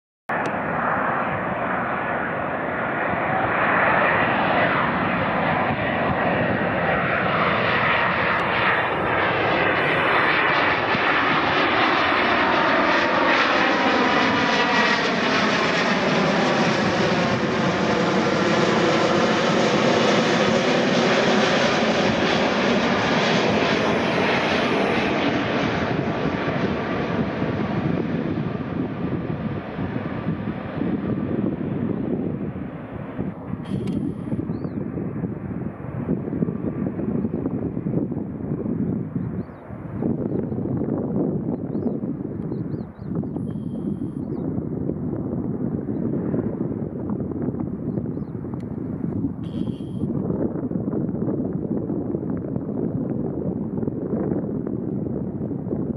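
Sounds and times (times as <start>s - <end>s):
whooshing jet passing overhead: 0.3s - 38.9s
jet engines rumbling: 0.3s - 55.9s.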